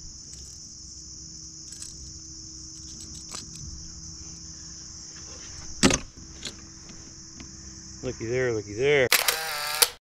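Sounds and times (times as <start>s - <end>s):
insects buzzing: 0.0s - 10.0s.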